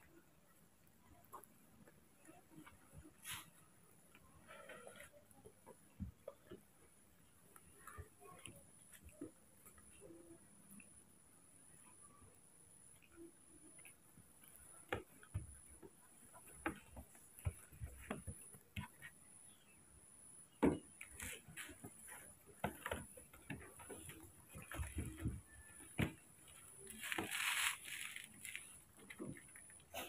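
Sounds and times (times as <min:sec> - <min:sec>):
soft knocks and thumps on carpet: 0:14.8 - 0:19.2, 0:20.6 - 0:26.8
rustle: 0:26.8 - 0:28.8.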